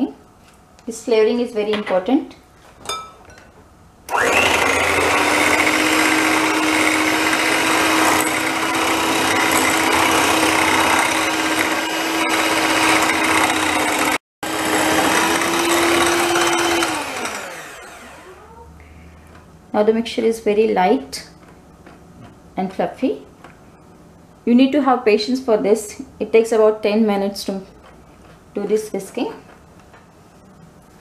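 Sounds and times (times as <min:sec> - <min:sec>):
electric hand mixer whining: 0:04.1 - 0:18.5.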